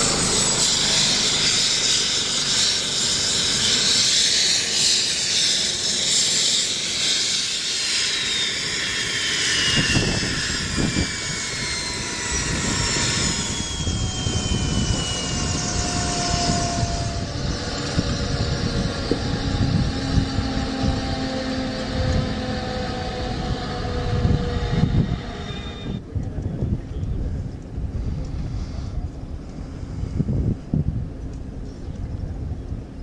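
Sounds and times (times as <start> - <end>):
helicopter turbine whine spooling down: 0.0 - 31.8.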